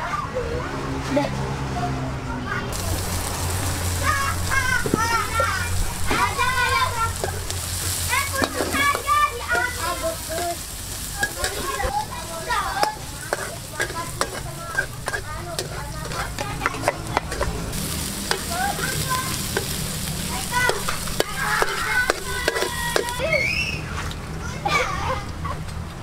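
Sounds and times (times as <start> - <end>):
shallots sizzling in oil: 2.7 - 23.3
metal spatula scraping pan: 6.2 - 23.2.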